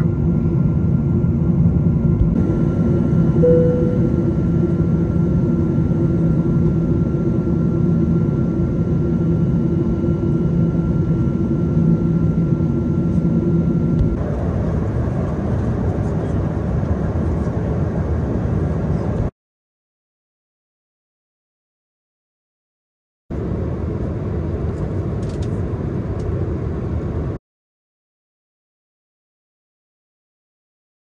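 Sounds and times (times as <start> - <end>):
airplane cabin roar: 0.0 - 19.3, 23.3 - 27.4
faint steady whine: 2.4 - 4.7
short tone: 3.4 - 4.3.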